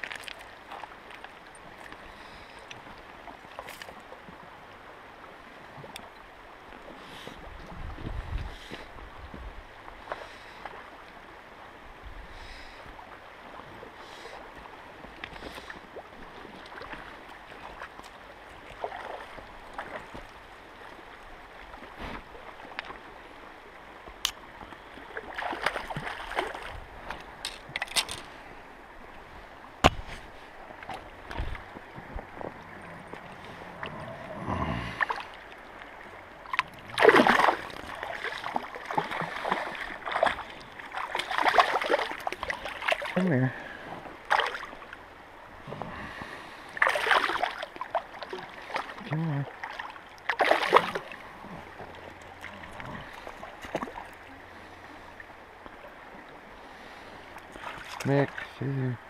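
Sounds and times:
small splashes and knocks: 0.0 - 2.0, 2.7 - 4.1, 24.2 - 28.4, 36.4 - 43.3, 44.3 - 44.8, 46.8 - 51.2, 51.8 - 54.2, 57.4 - 58.6
river current rushing: 8.7 - 59.0
loud splashing in water: 37.0 - 38.4.

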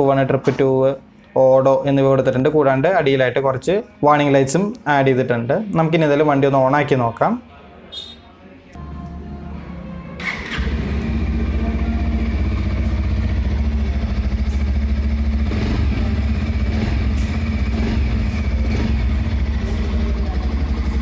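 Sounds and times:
motorcycle engine idling: 10.2 - 21.0
motorcycle engine starting: 10.2 - 21.0.

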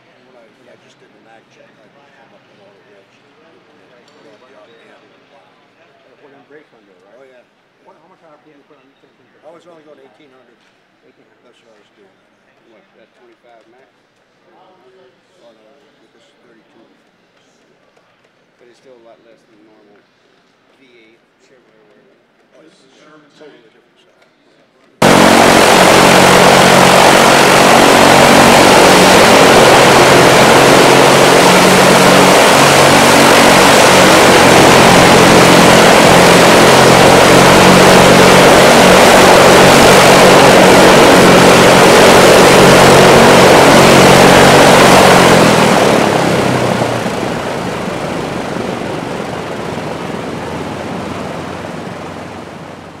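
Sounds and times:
aircraft piston engines running: 25.0 - 53.0.

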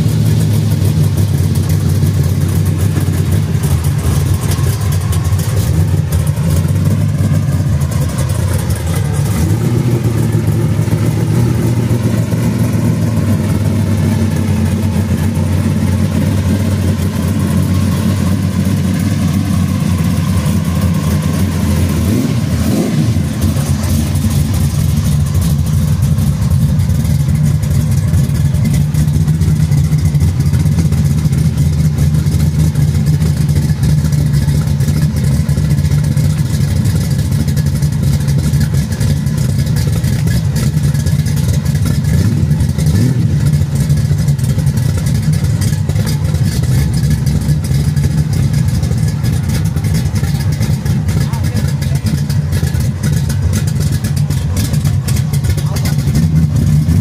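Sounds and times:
engine revving: 0.0 - 35.3, 40.1 - 57.0
car engine rumbling: 0.0 - 57.0.

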